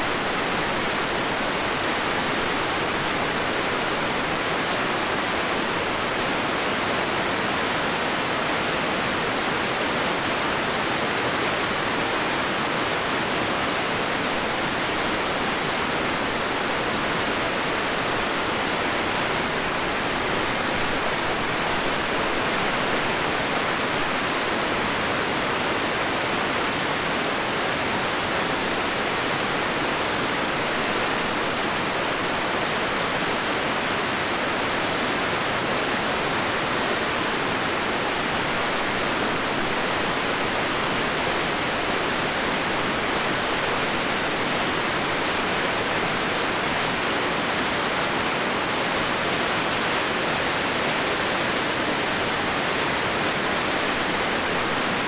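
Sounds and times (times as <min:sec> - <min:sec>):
rushing falling water: 0:00.0 - 0:55.0.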